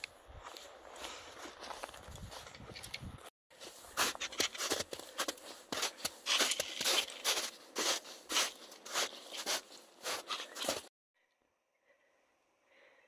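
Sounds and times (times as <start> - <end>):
footsteps on snow: 0.0 - 2.8, 3.5 - 10.9.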